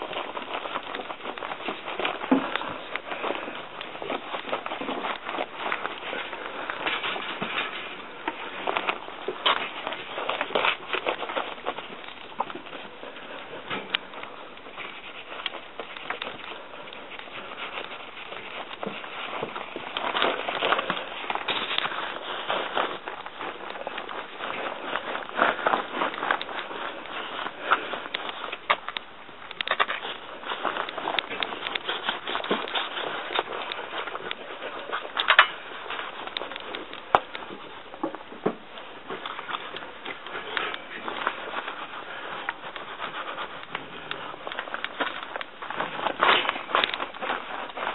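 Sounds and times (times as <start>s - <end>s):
brush scrubbing dog's coat: 38.8s - 47.9s.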